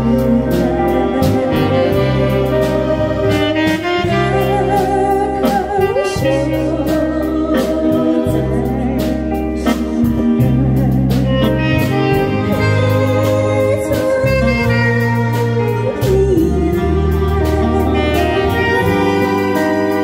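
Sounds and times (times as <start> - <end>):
woman singing into a microphone: 0.0 - 3.0, 3.7 - 20.0
live band playing a ballad: 0.0 - 20.0.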